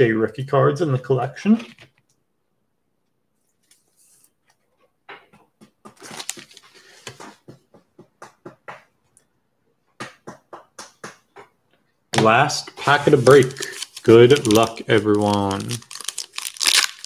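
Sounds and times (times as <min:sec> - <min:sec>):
crinkling rustles of handling: 0:06.0 - 0:07.2, 0:12.8 - 0:17.0.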